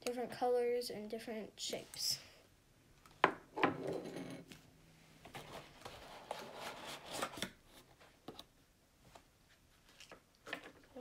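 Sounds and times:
cardboard rustling and scraping: 0:05.3 - 0:08.2.

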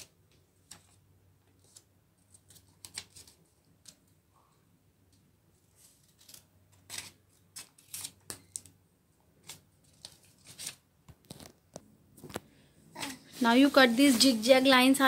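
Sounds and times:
scissors snipping paper: 0:06.0 - 0:08.7.

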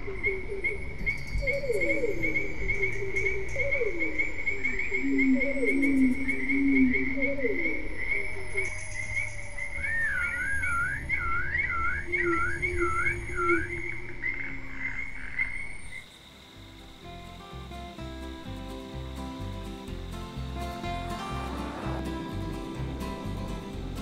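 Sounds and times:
rapidly pulsing high tone: 0:15.8 - 0:24.0
warbling electronic tone: 0:21.1 - 0:23.6.

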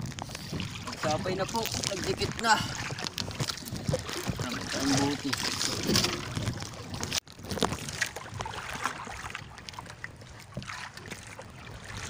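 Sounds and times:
knocks and rustles of fish handling: 0:00.0 - 0:08.9
water lapping against boat: 0:00.0 - 0:12.0.

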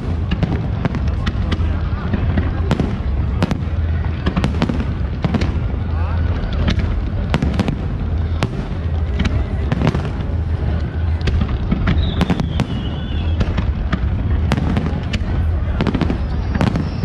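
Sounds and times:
firework bangs and crackles: 0:00.0 - 0:17.0
firework whistle: 0:11.8 - 0:13.7, 0:15.7 - 0:17.0.

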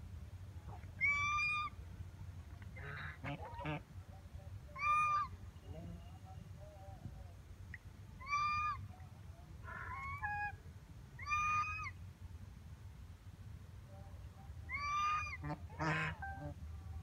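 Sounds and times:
geese honking: 0:02.8 - 0:03.8, 0:09.7 - 0:10.6, 0:14.8 - 0:16.6
harsh raspy goose call: 0:02.8 - 0:03.8, 0:14.7 - 0:16.6.

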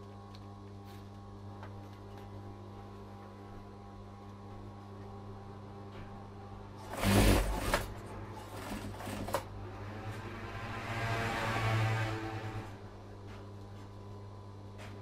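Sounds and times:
sewing machine stitching: 0:06.8 - 0:09.6
sewing machine humming: 0:06.8 - 0:11.1.

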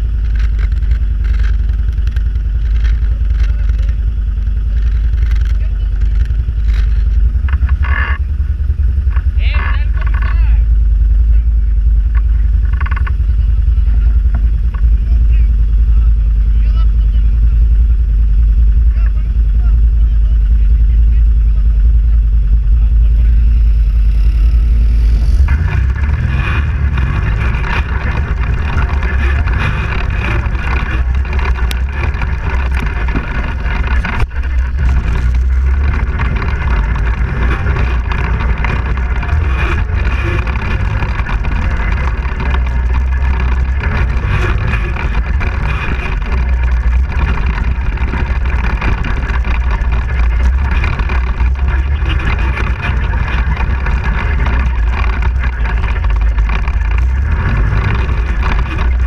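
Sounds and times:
quad engine running: 0:00.0 - 0:59.0.

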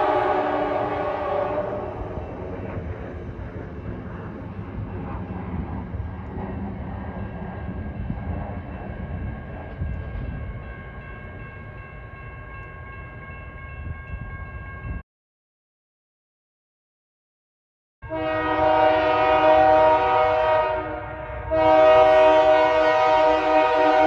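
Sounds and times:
train rumbling over rails: 0:00.0 - 0:15.0, 0:18.1 - 0:24.0.

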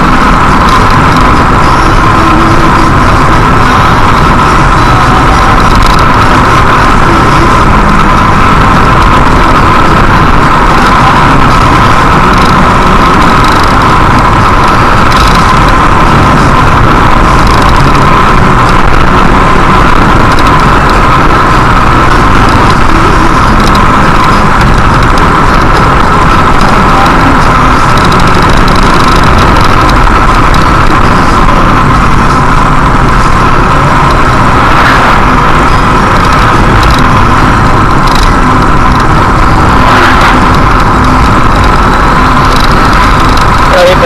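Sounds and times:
car road and engine noise: 0:00.0 - 0:44.0.

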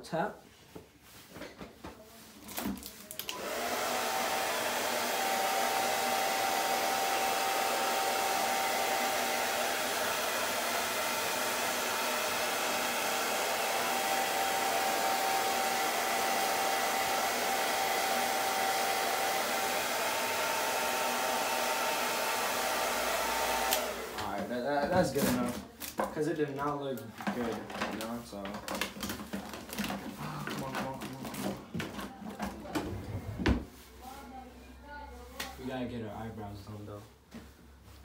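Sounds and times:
hair dryer running: 0:03.1 - 0:24.5.

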